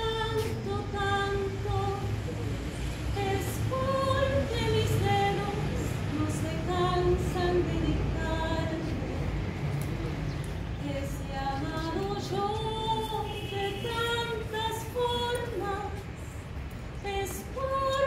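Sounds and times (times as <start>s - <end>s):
women's choir singing a cappella: 0.0s - 2.2s, 3.0s - 9.5s, 10.7s - 16.2s, 17.0s - 18.0s.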